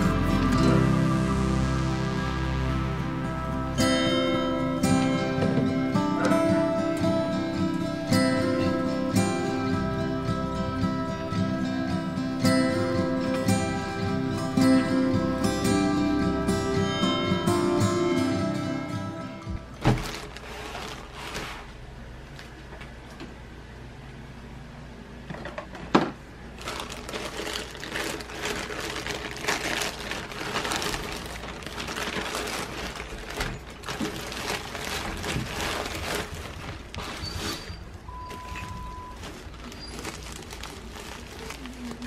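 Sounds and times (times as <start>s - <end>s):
plastic mailer bag crinkling: 19.6s - 21.7s, 26.5s - 42.0s.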